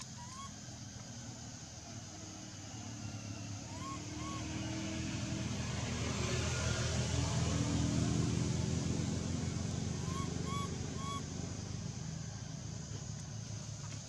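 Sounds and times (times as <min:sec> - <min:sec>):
baby monkey high calls: 0:00.0 - 0:00.6, 0:03.6 - 0:04.7, 0:10.0 - 0:11.3
low engine drone: 0:00.0 - 0:14.0.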